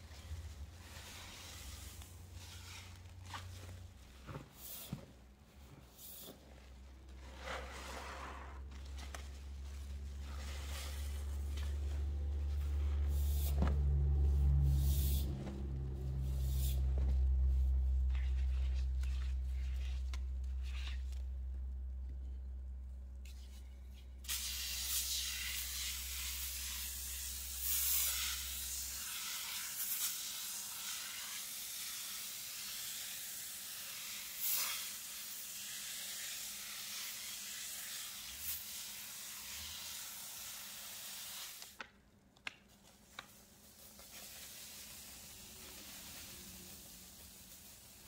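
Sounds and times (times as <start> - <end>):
steady spray hiss: 5.8 - 6.7, 24.2 - 41.7, 43.0 - 48.0.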